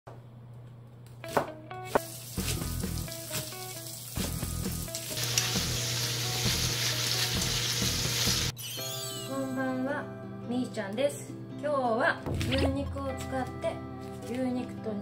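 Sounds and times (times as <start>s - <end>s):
food sizzling in a frying pan: 2.0s - 8.5s.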